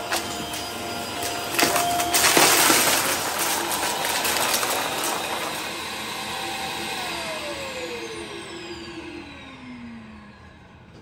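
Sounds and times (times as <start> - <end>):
debris crunching and rattling: 0.0 - 6.4
vacuum cleaner motor whine: 0.0 - 11.0.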